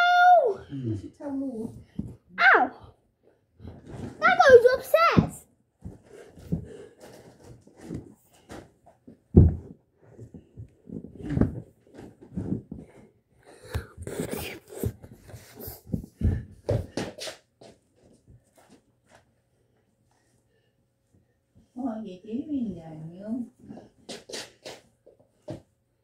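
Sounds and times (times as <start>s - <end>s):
thumps on microphone: 9.3s - 9.8s.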